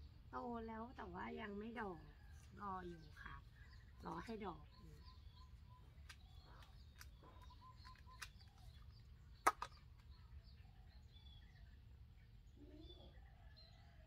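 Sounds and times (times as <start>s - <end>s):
faint birds chirping: 0.0s - 14.0s
light clicks of plastic pots: 6.0s - 10.2s.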